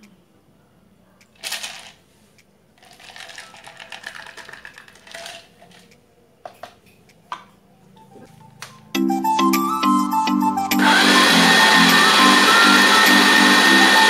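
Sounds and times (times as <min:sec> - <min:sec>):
ice cubes clinking: 0:01.4 - 0:02.0, 0:02.8 - 0:05.9.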